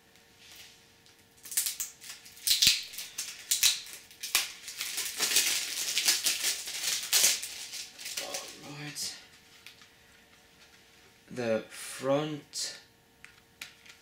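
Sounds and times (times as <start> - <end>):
plastic shrink wrap crinkling: 0.4 - 10.8.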